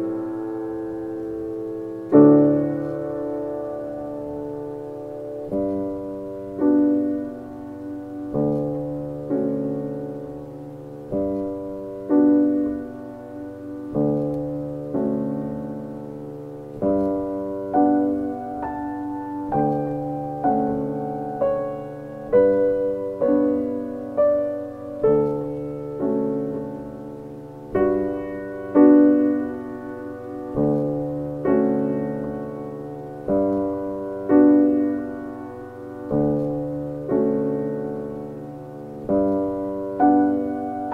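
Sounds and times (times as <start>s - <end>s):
gentle piano music: 0.0s - 40.9s.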